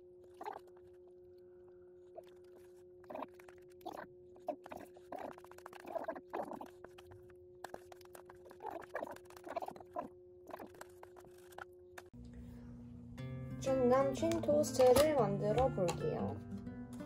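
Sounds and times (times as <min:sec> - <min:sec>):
faint steady hum: 0:00.0 - 0:16.8
eating and lip-smacking: 0:00.2 - 0:01.0, 0:02.1 - 0:12.1
spoon scraping plastic container: 0:02.2 - 0:11.7.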